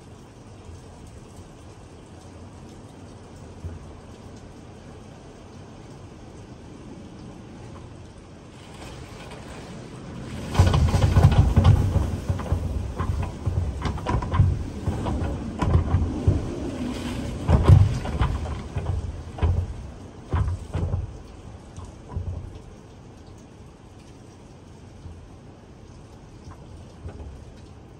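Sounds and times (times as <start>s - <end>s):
rain drop impacts: 0.0s - 27.9s
rain hissing: 0.0s - 27.9s
wind gusts buffeting microphone: 8.7s - 22.6s.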